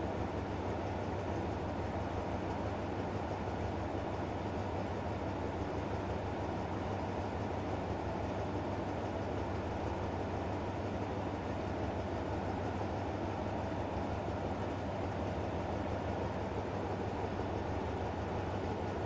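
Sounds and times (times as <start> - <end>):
diesel locomotive idling: 0.0 - 19.0.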